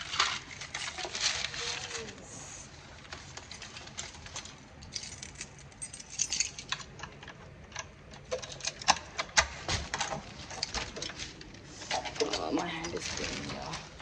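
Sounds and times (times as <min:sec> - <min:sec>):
keys jangling: 0:04.8 - 0:07.2.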